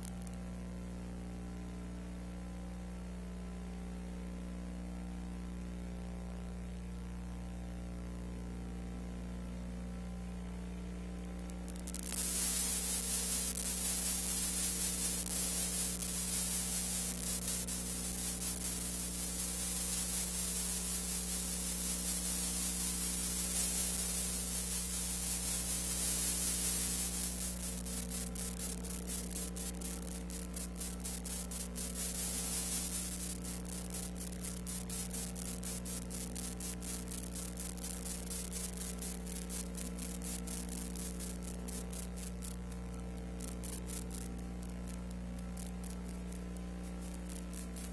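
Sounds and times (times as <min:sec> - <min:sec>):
fine crackle: 0:00.0 - 0:00.4, 0:11.5 - 0:47.9
low electrical hum: 0:00.0 - 0:47.9
loud even hiss: 0:11.8 - 0:42.3.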